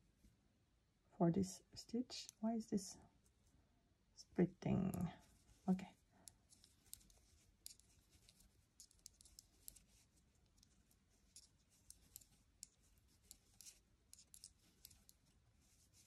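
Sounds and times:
knitting needles clicking: 0:02.2 - 0:02.4, 0:04.8 - 0:16.0.

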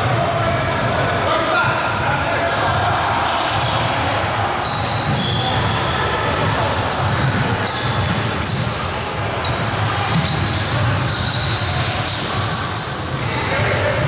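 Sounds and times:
sneakers squeaking: 0:00.0 - 0:14.0
basketball bouncing: 0:04.9 - 0:12.6.

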